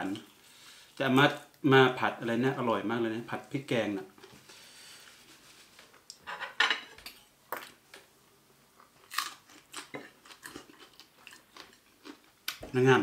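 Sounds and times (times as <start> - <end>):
chewing and crunching food: 8.8 - 12.6.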